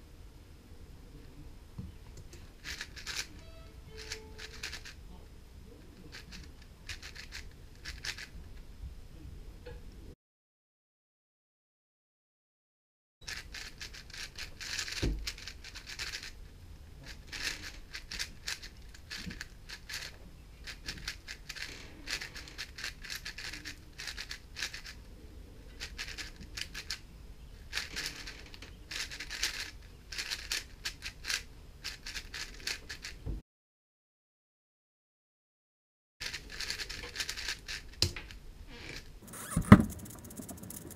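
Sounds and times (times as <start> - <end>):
plastic puzzle cube clicking: 2.6 - 3.3, 4.0 - 5.0, 6.1 - 8.3, 13.3 - 16.3, 17.3 - 25.0, 27.7 - 33.2.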